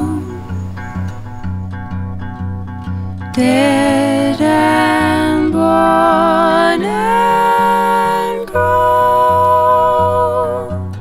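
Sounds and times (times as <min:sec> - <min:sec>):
person singing long notes: 0:00.0 - 0:00.7, 0:03.4 - 0:11.0
soft acoustic guitar: 0:00.0 - 0:11.0.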